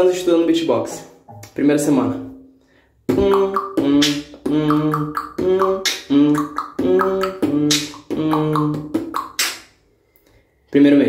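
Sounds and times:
beatbox beat: 3.0s - 9.8s
hissing beatbox snare: 3.1s - 9.7s.

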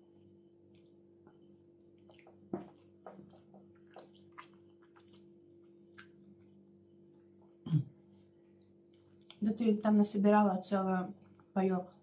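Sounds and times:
faint steady hum: 0.0s - 12.0s
chewing and lip smacks: 0.7s - 6.5s, 8.9s - 9.4s.

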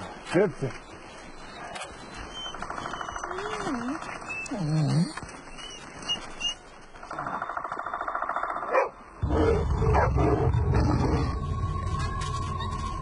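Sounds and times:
wolves snarling: 8.7s - 12.9s
wolves growling: 9.2s - 13.0s.

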